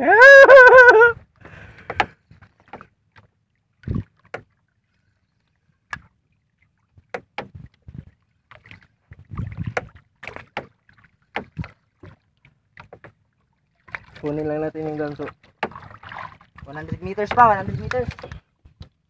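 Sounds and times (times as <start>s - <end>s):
knocks and slaps on wooden boat: 1.8s - 4.6s, 7.0s - 12.2s, 12.8s - 13.2s, 15.2s - 19.0s.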